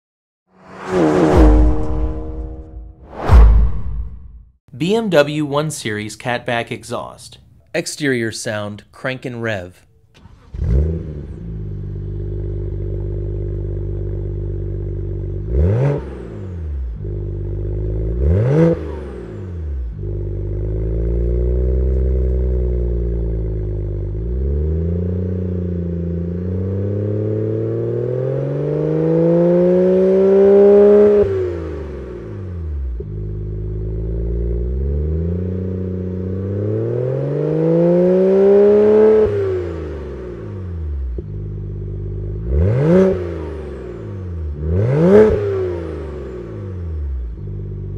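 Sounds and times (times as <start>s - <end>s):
car engine revving: 0.5s - 4.4s, 10.1s - 47.9s
car engine starting: 0.6s - 4.4s, 9.9s - 47.9s
car engine idling: 9.9s - 15.6s, 19.2s - 26.5s, 32.2s - 36.4s, 39.9s - 44.7s, 45.9s - 47.9s.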